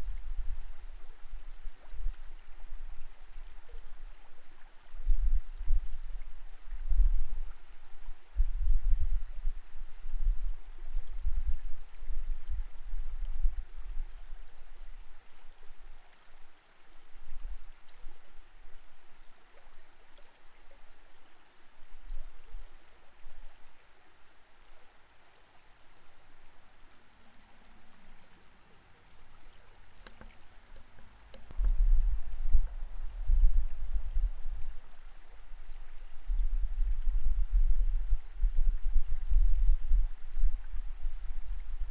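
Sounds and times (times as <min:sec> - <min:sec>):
deep underwater rumbles: 0:00.0 - 0:16.0, 0:30.0 - 0:41.9
muffled underwater water wash: 0:00.0 - 0:41.9.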